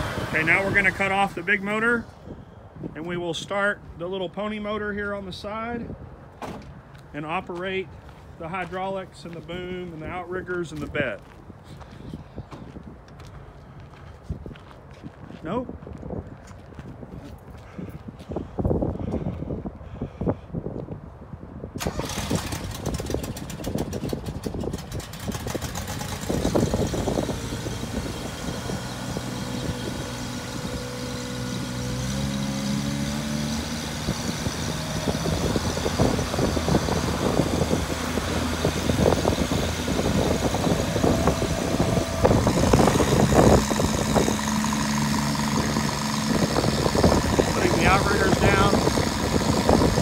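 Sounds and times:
small engine cranking and running: 0:21.8 - 0:50.0.

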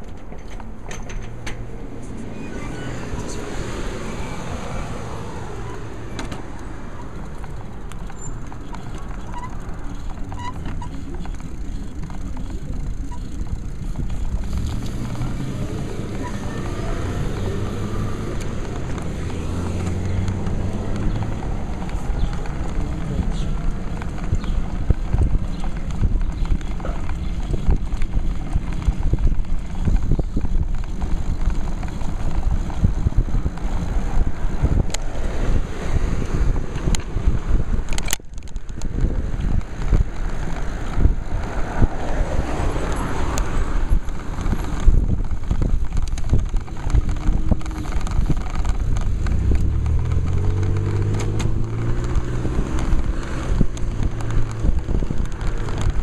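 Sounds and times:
bike mount rattling: 0:00.0 - 0:01.7, 0:36.7 - 0:41.1
motor vehicle engine hum: 0:00.0 - 0:56.0
wind buffeting microphone: 0:00.0 - 0:56.0.

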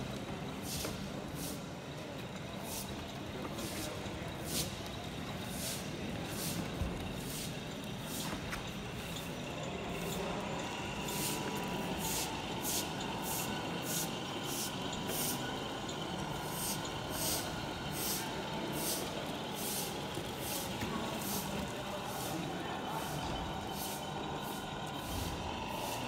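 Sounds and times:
air-brake hisses: 0:11.0 - 0:15.6, 0:16.4 - 0:26.0.

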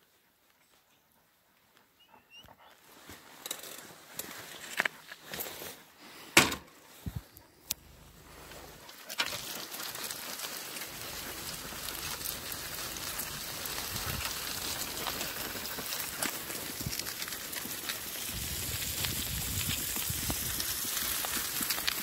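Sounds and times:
cart wheels rattling on gravel: 0:07.9 - 0:22.0.

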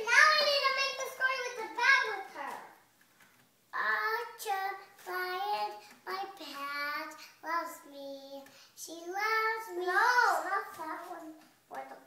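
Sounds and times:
child singing: 0:03.8 - 0:12.0.

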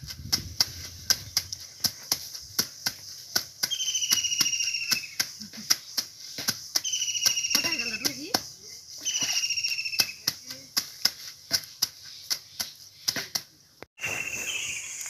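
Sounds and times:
wet laundry slapping on stone: 0:00.0 - 0:13.6
insect buzzing: 0:03.0 - 0:10.6.

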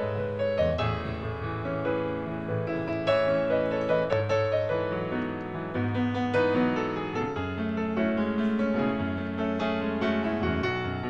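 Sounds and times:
piano music: 0:00.0 - 0:11.0.

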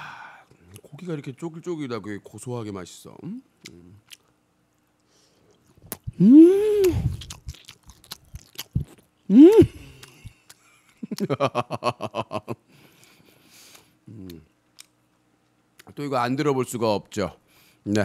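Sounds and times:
man chewing food: 0:03.6 - 0:04.4, 0:05.0 - 0:11.3, 0:12.8 - 0:15.9
man moaning: 0:06.2 - 0:07.0, 0:09.3 - 0:09.8
man laughing: 0:09.3 - 0:12.6.

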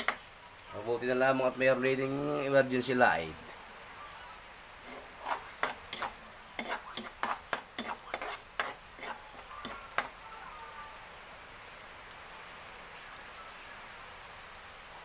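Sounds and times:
faint oil sizzle: 0:00.0 - 0:15.0
ladle scraping a metal wok: 0:04.8 - 0:10.1.

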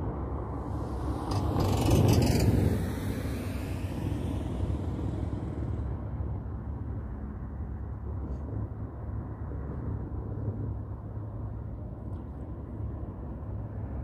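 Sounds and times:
car passing: 0:00.0 - 0:08.3
distant traffic: 0:00.0 - 0:14.0
wind rumble: 0:00.0 - 0:14.0.

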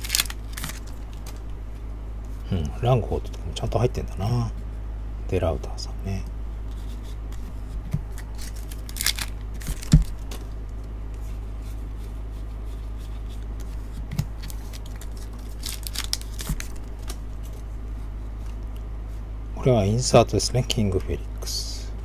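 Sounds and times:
cards being shuffled: 0:00.0 - 0:01.6, 0:06.6 - 0:17.7
steady low hum: 0:00.0 - 0:22.0.

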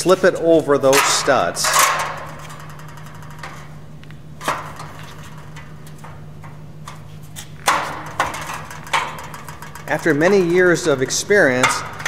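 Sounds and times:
metal clatter: 0:00.8 - 0:03.8, 0:04.4 - 0:12.0
steel track clanking on studs: 0:00.8 - 0:03.8, 0:07.6 - 0:12.0.

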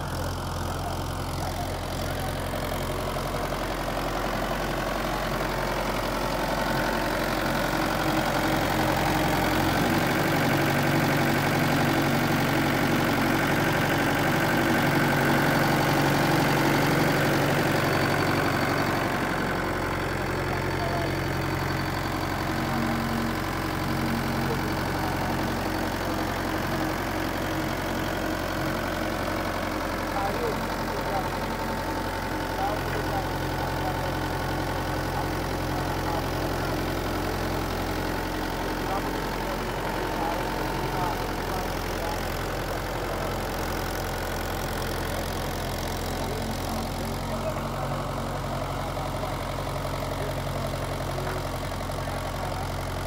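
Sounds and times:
tractor diesel engine: 0:00.0 - 0:53.0.

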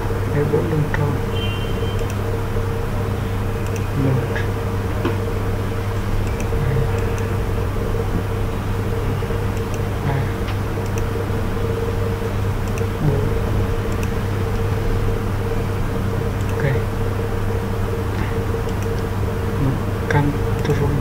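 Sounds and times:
low electrical hum: 0:00.0 - 0:21.0
computer mouse clicks: 0:03.6 - 0:03.9, 0:06.0 - 0:07.3, 0:09.5 - 0:11.1, 0:12.6 - 0:12.9, 0:13.9 - 0:14.2, 0:18.2 - 0:19.1.

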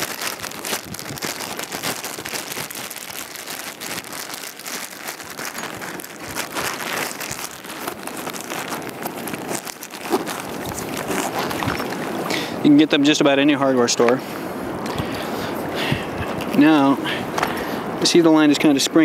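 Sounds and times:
river water rushing: 0:05.2 - 0:18.0.

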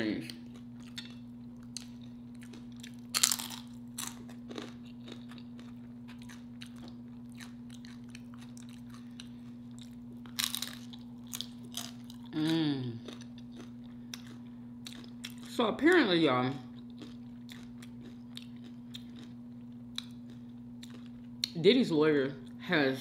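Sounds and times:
chips crunching while chewed: 0:00.0 - 0:21.6
steady low hum: 0:00.0 - 0:23.0.

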